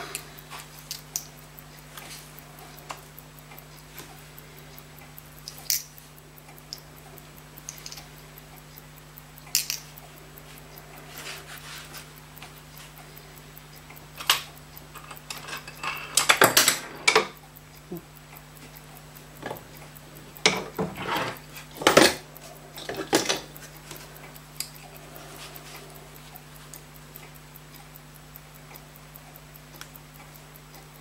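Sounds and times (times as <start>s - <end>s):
small metal tools clicking: 0.0s - 1.4s, 5.4s - 6.0s, 7.6s - 8.1s, 9.5s - 10.0s, 14.2s - 18.0s, 20.4s - 26.0s
steady low hum: 0.0s - 31.0s.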